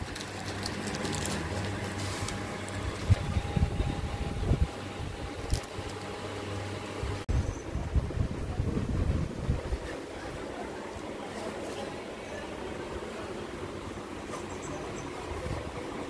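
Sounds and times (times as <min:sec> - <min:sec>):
plastic wrapping rustling: 0:00.0 - 0:03.6, 0:05.3 - 0:06.2
machine hum with faint tone: 0:00.0 - 0:16.0.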